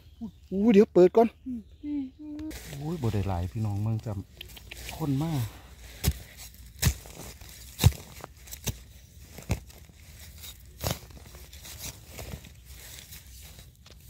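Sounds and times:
dry leaves crackling and rustling: 2.4s - 14.0s
sharp snaps: 4.2s - 5.3s.

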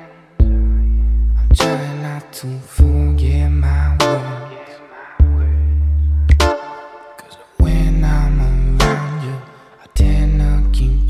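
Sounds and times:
song with deep bass: 0.0s - 11.0s.

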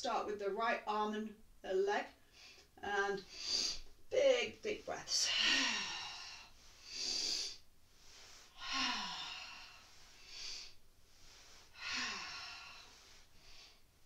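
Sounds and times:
woman breathing deeply: 2.2s - 4.0s, 5.2s - 14.0s.

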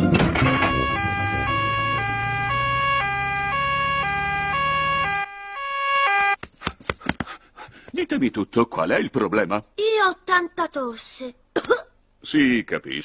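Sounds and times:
two-tone siren: 0.0s - 6.4s
quick taps: 6.4s - 7.4s.

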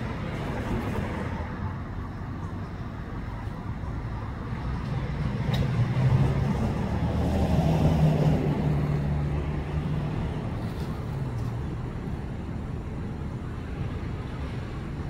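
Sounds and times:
vehicle passing: 4.5s - 11.5s.

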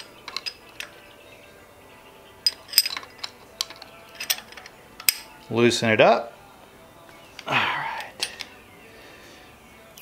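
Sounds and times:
metal tools clinking: 0.0s - 1.1s, 2.4s - 5.4s, 8.0s - 8.6s.

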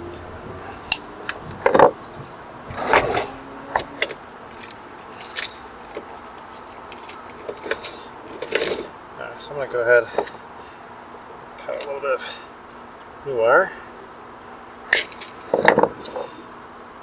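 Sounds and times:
tool clattering on wooden deck: 1.4s - 6.1s, 15.0s - 16.4s
wire strippers clicking and snipping: 2.7s - 8.9s.

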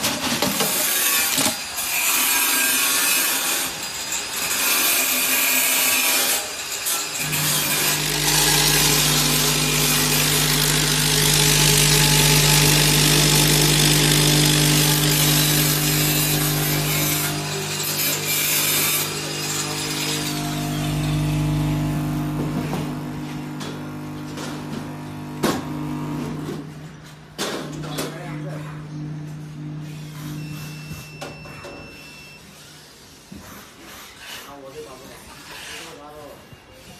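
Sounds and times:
filling machine humming: 7.2s - 31.3s.

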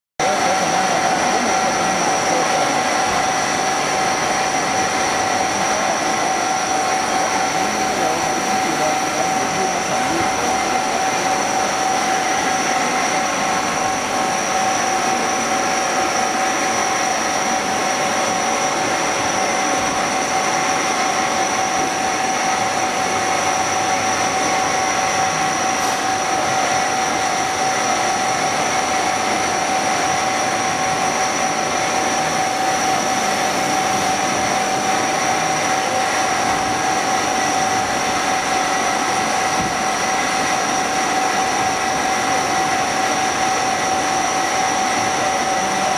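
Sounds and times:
machine whine: 0.2s - 45.9s.

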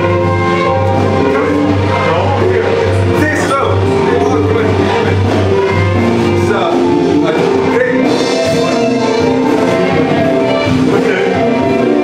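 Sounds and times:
loud music with held notes: 0.0s - 12.0s.

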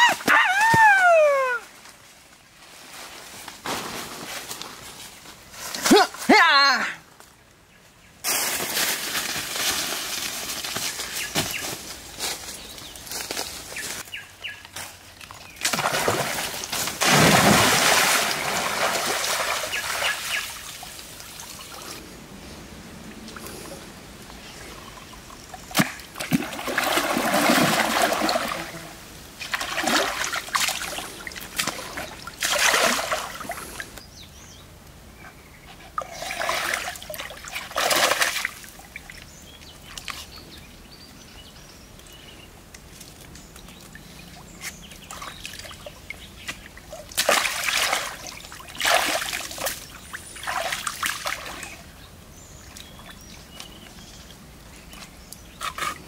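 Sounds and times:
water splashing and sloshing: 14.9s - 22.1s, 22.9s - 34.0s, 36.0s - 40.4s, 42.9s - 52.0s.

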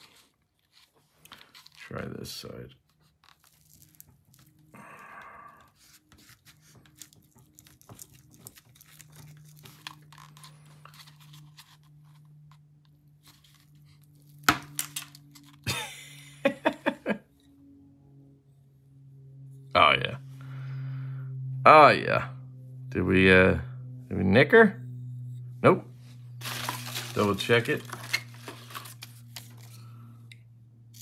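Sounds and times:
plastic crunching: 2.9s - 4.7s, 6.2s - 12.2s, 26.4s - 29.9s.

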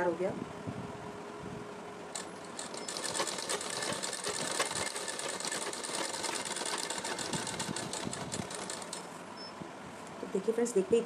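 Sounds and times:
sewing machine stitching: 2.2s - 9.1s.

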